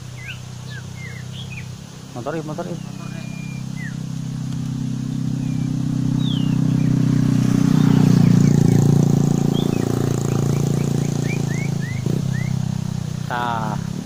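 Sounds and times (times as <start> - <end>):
motorcycle engine passing by: 0.0 - 14.0
short bird chirps: 0.2 - 1.7, 2.7 - 4.0, 5.4 - 7.0, 9.5 - 12.6.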